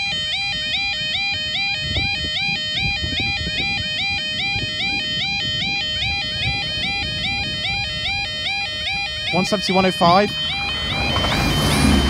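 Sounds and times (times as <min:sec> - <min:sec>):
level crossing alarm two-tone: 0:00.0 - 0:12.0
low rumbling noise: 0:10.3 - 0:12.0.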